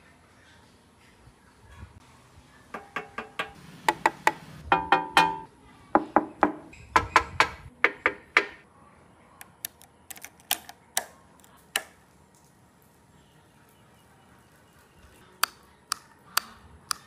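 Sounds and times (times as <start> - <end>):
fingers tapping on metal: 2.8 - 5.5.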